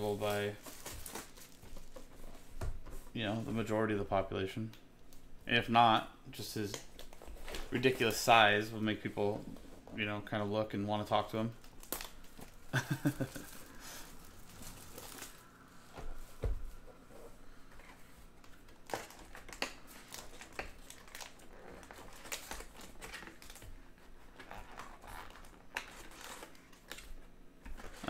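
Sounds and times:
card pack wrappers crinkling: 0.0 - 2.1, 11.1 - 15.5, 18.5 - 23.8.

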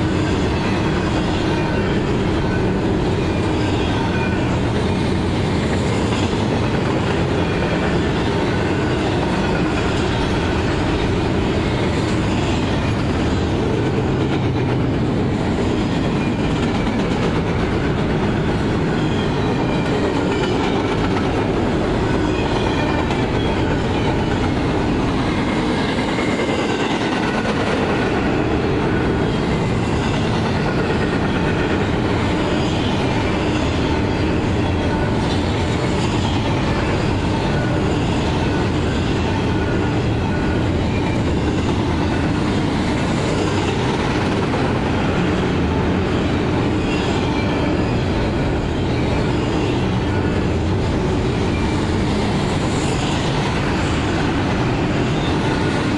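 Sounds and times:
freight train wheels rumbling: 0.0 - 55.9.

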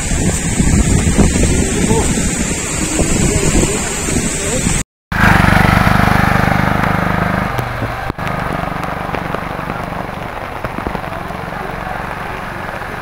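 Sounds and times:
heavy rain: 0.0 - 13.0
small vehicle engine running: 5.2 - 13.0.

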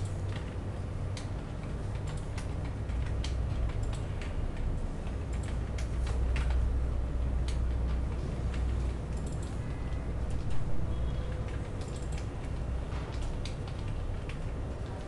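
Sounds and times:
low steady hum: 0.0 - 15.0
typing on keyboard: 0.0 - 15.0.

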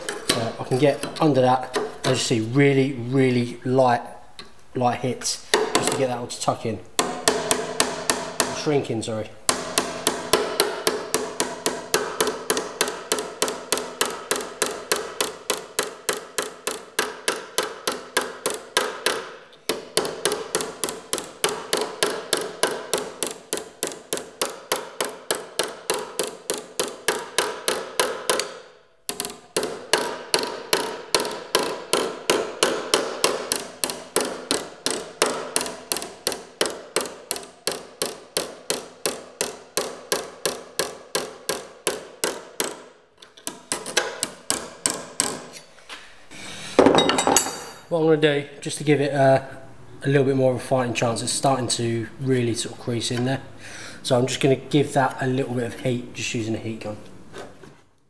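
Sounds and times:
hammer tapping sheet metal: 0.0 - 2.5, 5.4 - 6.2, 7.0 - 45.6.

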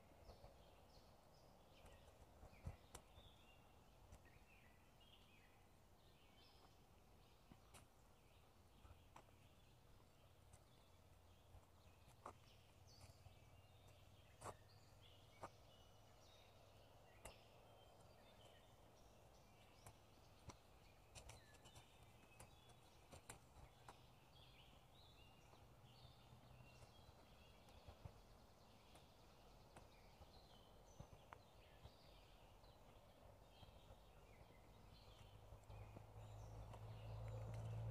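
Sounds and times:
birds chirping: 0.0 - 37.9
footsteps on dirt path: 10.6 - 16.4.

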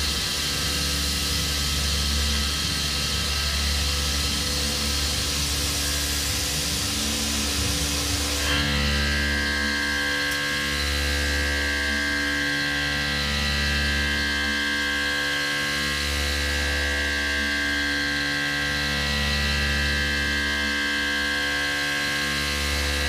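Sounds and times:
low machine hum: 0.0 - 23.0
mill spindle whine: 0.0 - 23.0.

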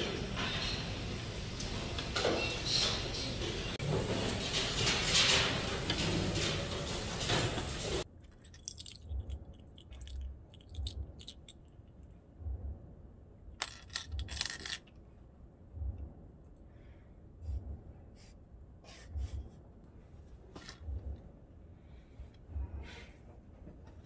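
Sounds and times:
dishes and cutlery clattering: 0.0 - 8.0.

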